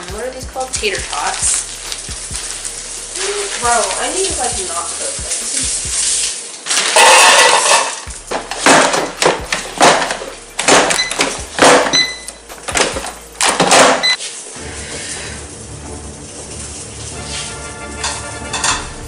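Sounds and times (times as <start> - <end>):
plastic bag crinkling: 0.9 - 8.1
tater tots clattering into basket: 6.6 - 12.0.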